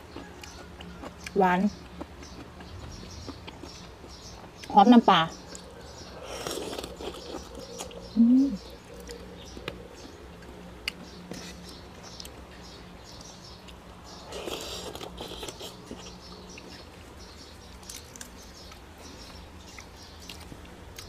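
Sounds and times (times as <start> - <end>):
person chewing: 0.0 - 4.7, 5.5 - 8.0, 13.7 - 16.7.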